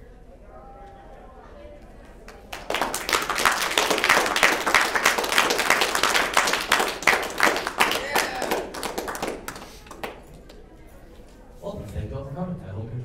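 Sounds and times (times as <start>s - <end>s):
audience applauding: 2.3s - 10.6s.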